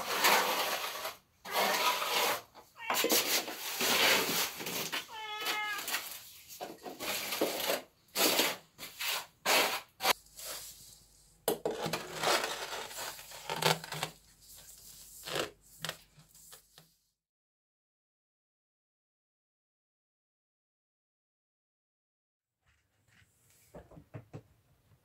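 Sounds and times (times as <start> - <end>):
rustling: 0.0 - 11.2, 11.8 - 16.9
cat meowing: 2.7 - 3.3, 5.0 - 6.2.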